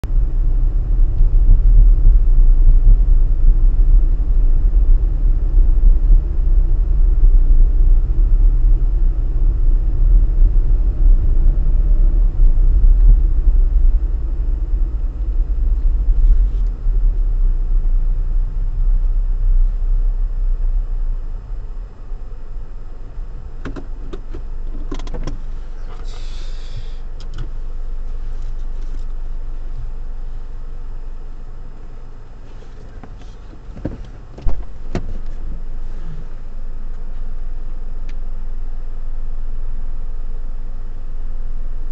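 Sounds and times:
car road and engine rumble: 0:00.0 - 0:41.9
short hiss: 0:25.8 - 0:27.0.

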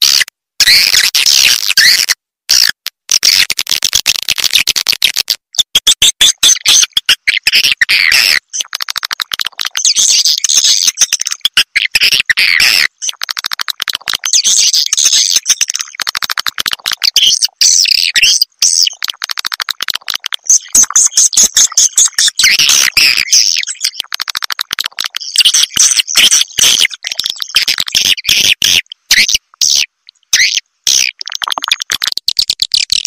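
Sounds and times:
high twittering bird chirps: 0:20.4 - 0:24.1, 0:25.1 - 0:31.3.

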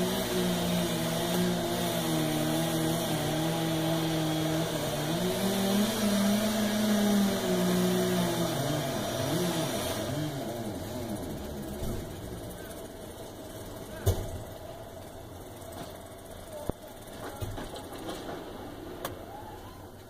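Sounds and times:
chainsaw cutting tree trunk: 0:00.0 - 0:13.1.

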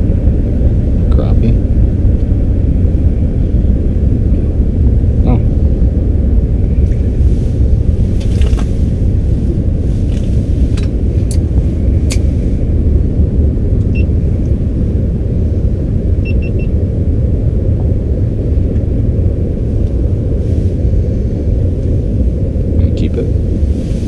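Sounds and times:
steady low rumble: 0:00.0 - 0:24.0
short electronic beeps: 0:16.2 - 0:16.7.

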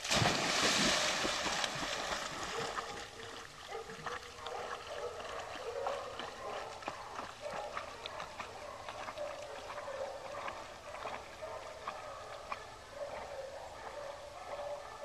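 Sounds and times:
dog splashing into pond: 0:00.0 - 0:13.3
water noise of dog swimming: 0:00.0 - 0:15.0.

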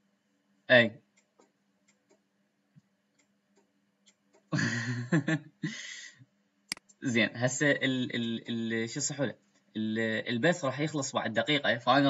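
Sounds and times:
man's breathy wordless vocal: 0:05.6 - 0:06.2.

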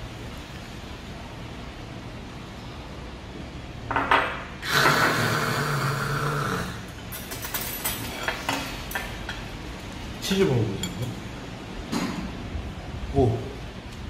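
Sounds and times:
drawn-out vocal exclamation: 0:04.6 - 0:06.9.

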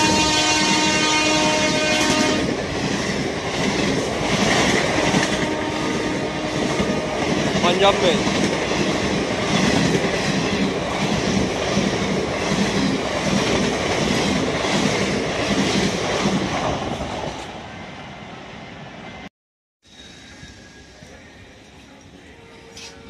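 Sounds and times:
train wheels clattering on rails: 0:06.6 - 0:17.5.

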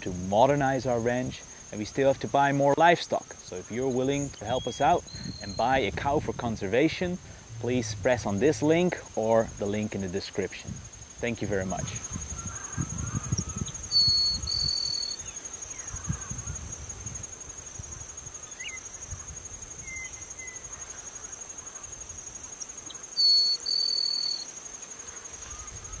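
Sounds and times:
insect trilling: 0:00.0 - 0:26.0
bird whistling two notes: 0:23.2 - 0:24.4.

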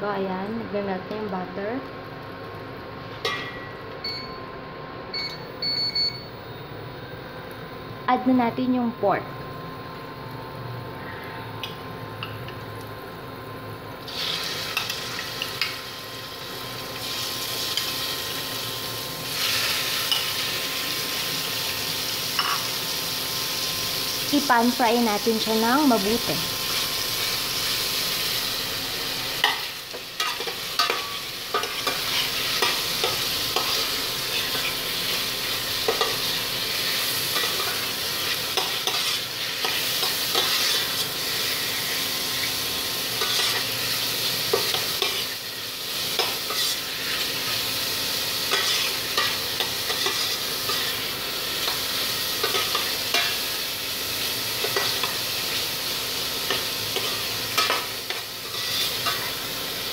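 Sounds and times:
meat sizzling in butter: 0:14.0 - 0:59.9.

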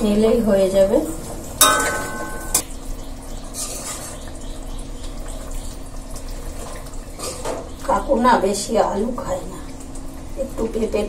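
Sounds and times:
metal spatula knocking on pan: 0:01.6 - 0:02.6
small clicks and splashes: 0:03.2 - 0:07.9.

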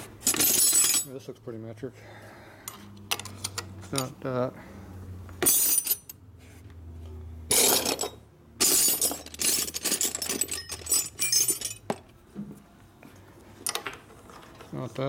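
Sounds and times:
wrenches clattering in metal pail: 0:00.2 - 0:01.2, 0:07.5 - 0:12.0.

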